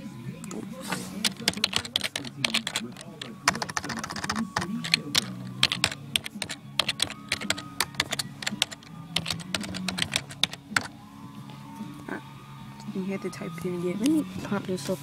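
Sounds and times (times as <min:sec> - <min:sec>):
typing on a computer keyboard: 0:01.2 - 0:10.9.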